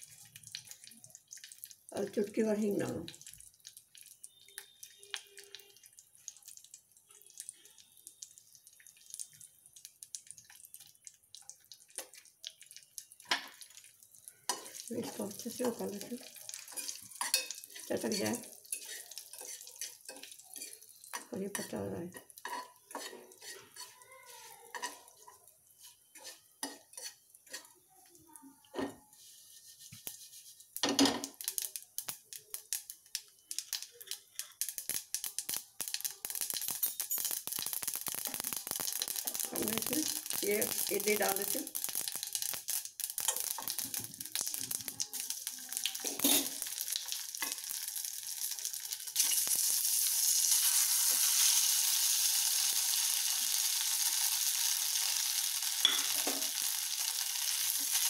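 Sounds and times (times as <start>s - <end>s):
seeds popping in hot oil: 0.0s - 28.9s, 29.9s - 58.0s
pot clattering on burner grate: 16.6s - 24.0s, 30.8s - 31.5s, 34.6s - 41.1s, 41.8s - 44.9s, 46.0s - 46.8s, 55.8s - 56.6s
spoon clinking on metal pot: 16.6s - 24.0s, 36.4s - 37.6s, 55.8s - 56.6s.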